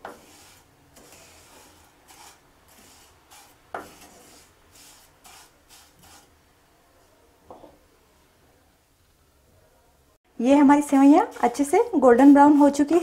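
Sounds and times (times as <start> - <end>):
spatula scraping pan: 0.0 - 6.4, 10.8 - 13.0.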